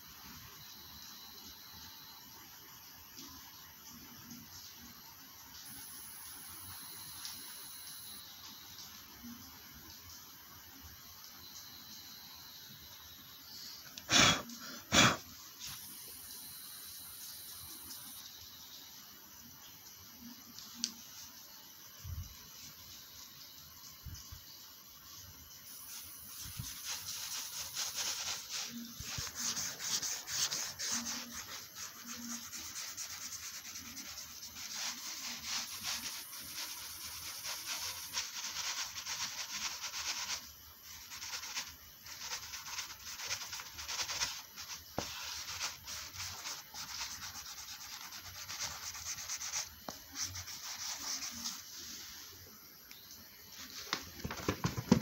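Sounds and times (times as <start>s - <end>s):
pencil scratching on paper: 25.7s - 40.4s, 41.0s - 51.7s.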